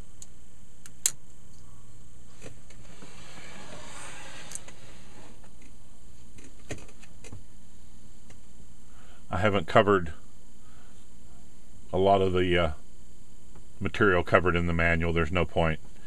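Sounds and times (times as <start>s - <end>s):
steady low hum: 0.0s - 16.0s
sharp click: 0.2s - 1.6s
heavy chassis scraping and rubbing: 2.8s - 5.4s.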